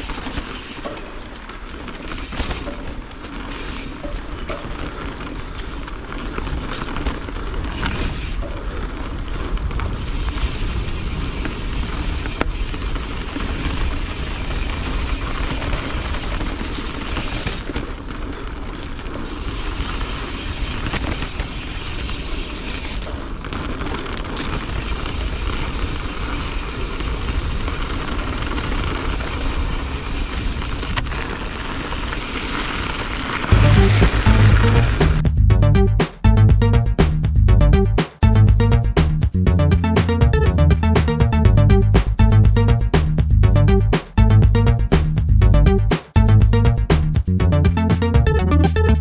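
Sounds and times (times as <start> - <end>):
bike knocking and rattling: 0.0 - 33.5
bike tyres rolling on dirt: 0.0 - 35.3.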